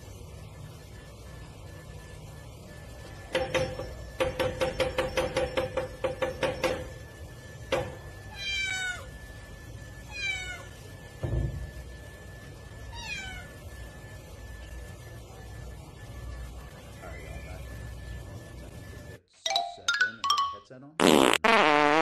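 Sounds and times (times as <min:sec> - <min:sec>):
cat meowing: 0:08.3 - 0:09.1, 0:10.1 - 0:10.7, 0:12.9 - 0:13.5.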